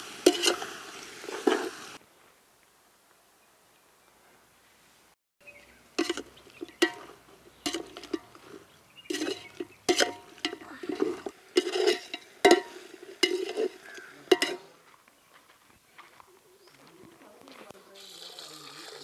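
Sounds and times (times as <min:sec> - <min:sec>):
metal ladle scraping steel pot: 0:00.2 - 0:00.7, 0:01.3 - 0:01.8, 0:06.0 - 0:14.7.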